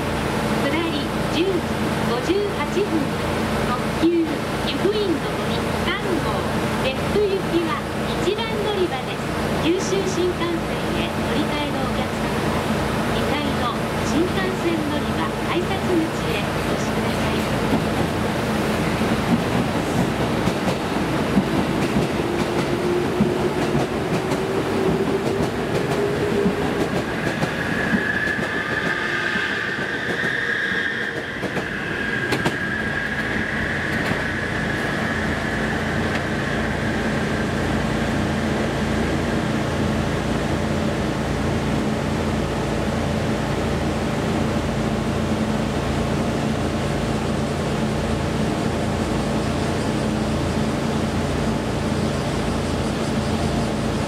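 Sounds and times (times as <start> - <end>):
train passing: 0.0 - 54.0
wheels squealing on rails: 24.4 - 38.9.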